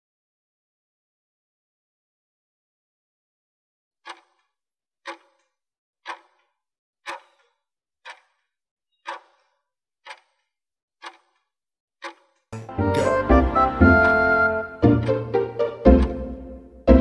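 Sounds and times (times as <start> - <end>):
clock ticking: 4.0 - 8.4, 9.0 - 11.4, 12.0 - 17.0.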